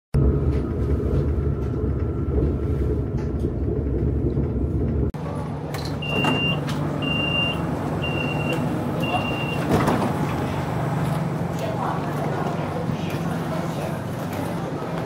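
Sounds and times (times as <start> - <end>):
metro train rumble: 0.2 - 15.0
short high door warning beeps: 6.0 - 9.8.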